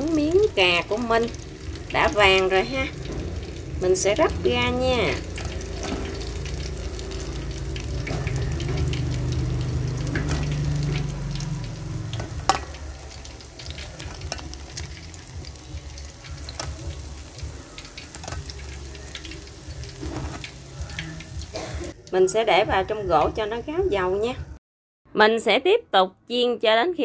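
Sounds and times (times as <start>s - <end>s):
food sizzling in hot oil: 0.0s - 24.4s
utensils clicking against a pan: 5.2s - 21.5s.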